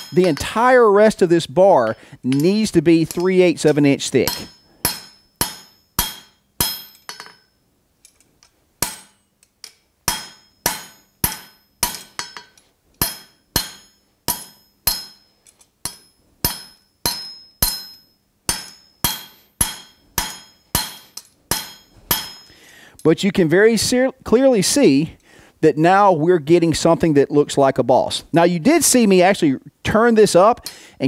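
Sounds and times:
hammer blows on anvil: 0:00.0 - 0:00.7, 0:02.3 - 0:07.5, 0:10.1 - 0:22.6.

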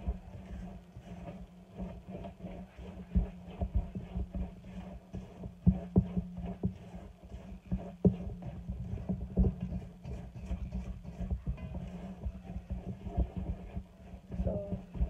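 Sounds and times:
spatula scraping a metal bowl: 0:00.1 - 0:15.0.

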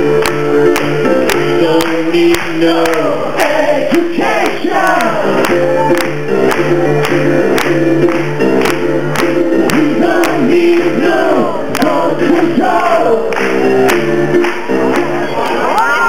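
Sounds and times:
steady beat: 0:00.0 - 0:15.2
male vocal group singing: 0:01.4 - 0:05.4, 0:09.7 - 0:13.5.

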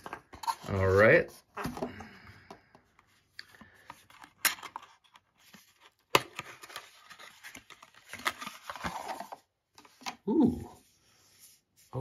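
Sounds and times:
paper and cardboard rustling: 0:00.0 - 0:02.0, 0:03.0 - 0:10.2.

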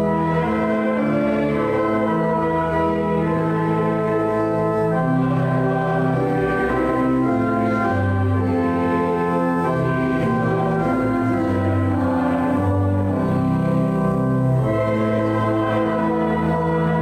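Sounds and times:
church organ playing chords: 0:00.0 - 0:17.0.

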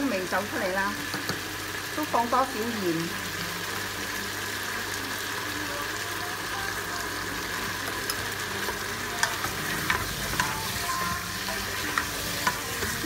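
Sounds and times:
food sizzling in pot: 0:00.0 - 0:13.0
spatula scraping pot: 0:08.6 - 0:13.0.

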